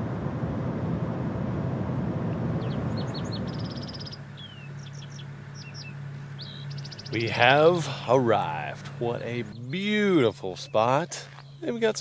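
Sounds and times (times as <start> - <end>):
road noise inside vehicle: 0.0 - 12.0
steady low hum: 0.0 - 12.0
small birds chirping: 2.5 - 12.0.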